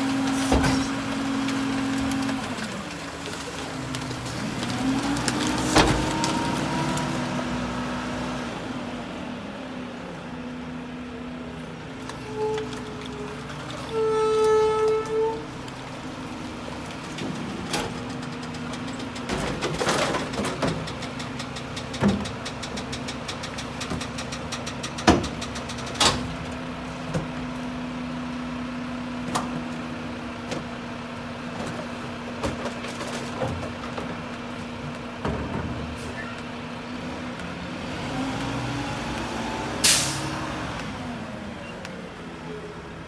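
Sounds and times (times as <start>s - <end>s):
recyclables clanking into hopper: 16.7s - 26.5s.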